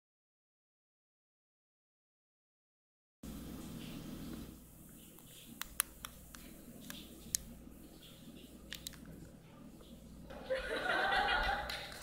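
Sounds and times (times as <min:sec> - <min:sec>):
sharp clicks: 0:05.2 - 0:07.5, 0:08.7 - 0:09.1
audience laughter: 0:10.3 - 0:12.0.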